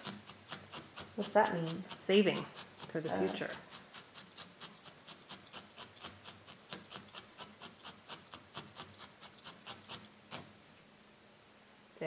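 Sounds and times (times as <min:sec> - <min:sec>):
felting needles poking wool: 0:00.0 - 0:10.6.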